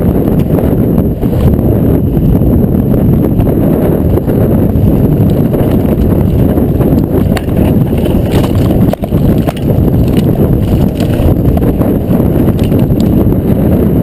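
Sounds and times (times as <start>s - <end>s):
wind buffeting microphone: 0.0s - 14.0s
bike rattling and knocking: 3.6s - 14.0s.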